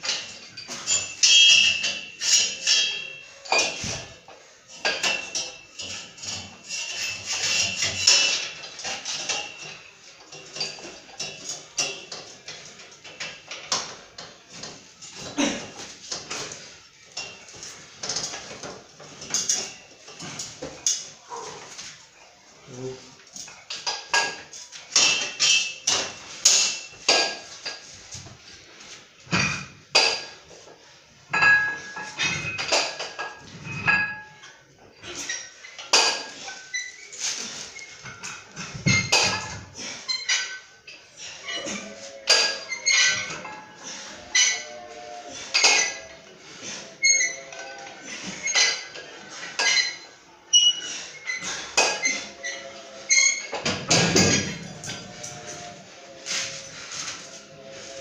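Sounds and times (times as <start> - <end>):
weight plates clanking: 0.1 - 21.9, 31.3 - 58.0.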